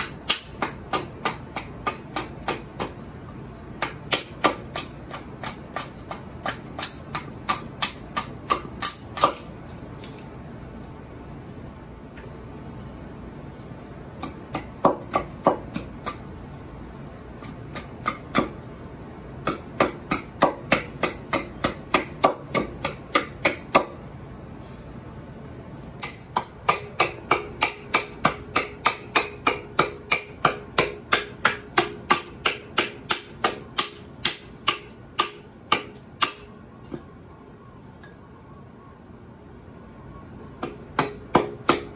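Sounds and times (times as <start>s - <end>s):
axe chopping wood: 0.0s - 3.0s, 3.8s - 9.5s, 14.2s - 16.2s, 17.4s - 18.6s, 19.4s - 24.0s, 26.0s - 36.5s, 40.6s - 41.9s.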